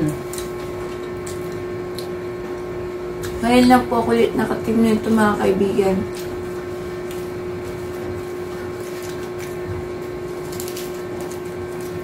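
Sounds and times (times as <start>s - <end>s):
steady room hum: 0.0s - 12.0s
taco shells crunching: 0.1s - 2.2s, 6.1s - 12.0s.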